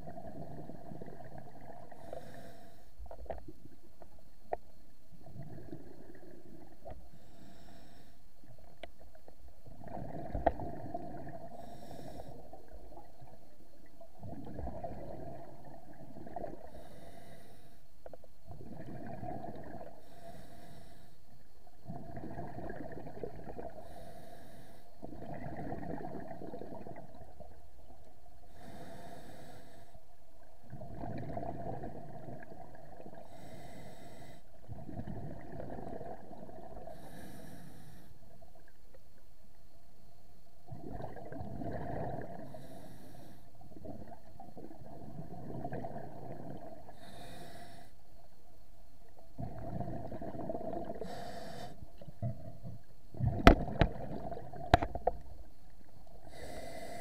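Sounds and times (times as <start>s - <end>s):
exhaled bubbles burbling: 0.0s - 2.0s, 5.2s - 6.9s, 9.6s - 11.6s, 12.4s - 16.7s, 18.5s - 20.0s, 21.8s - 23.8s, 25.0s - 28.0s, 30.6s - 33.2s, 34.6s - 36.9s, 40.7s - 42.6s, 43.6s - 46.9s, 49.3s - 51.2s, 51.9s - 56.4s
regulator inhalation hiss: 28.5s - 30.0s, 47.0s - 48.0s, 51.0s - 51.8s, 56.3s - 57.0s.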